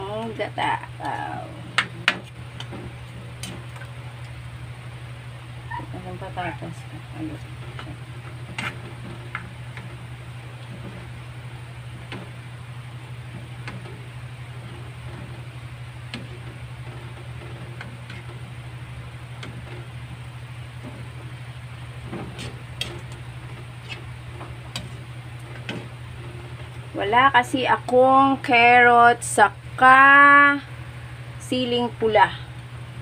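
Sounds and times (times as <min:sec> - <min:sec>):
low hum: 0:00.0 - 0:33.0
metal ladle scraping wok: 0:08.5 - 0:09.1.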